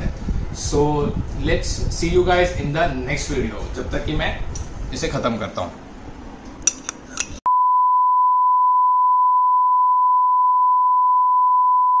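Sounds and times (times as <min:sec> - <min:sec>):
steady test tone beep: 0:07.5 - 0:12.0.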